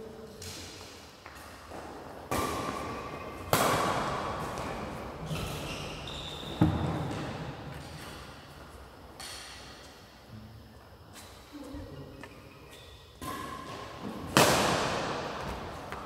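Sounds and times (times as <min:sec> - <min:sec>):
rackets hitting shuttlecock: 0:00.4 - 0:05.7, 0:13.2 - 0:16.0.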